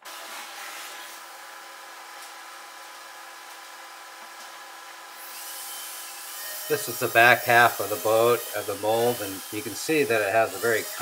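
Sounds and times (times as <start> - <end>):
dust collector rushing hiss: 6.1 - 11.0.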